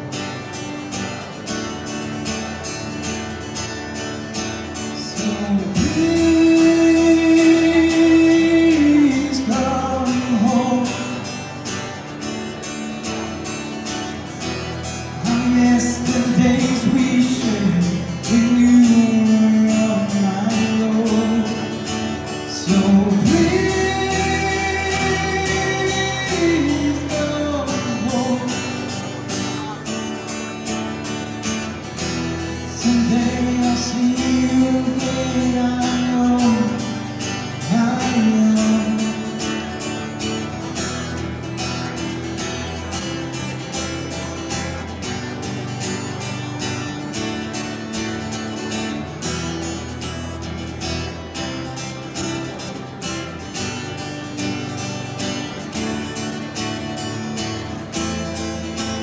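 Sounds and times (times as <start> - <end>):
strummed acoustic guitar: 0.0 - 59.0
man singing long notes: 5.0 - 11.2, 22.5 - 29.6.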